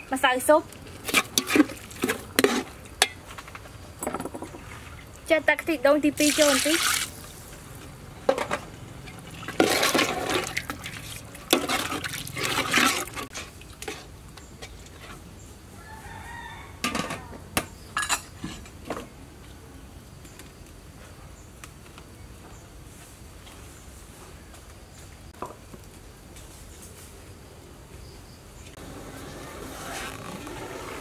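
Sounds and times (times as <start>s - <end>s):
metal ladle scraping a pot: 0.9s - 3.2s, 9.1s - 14.1s.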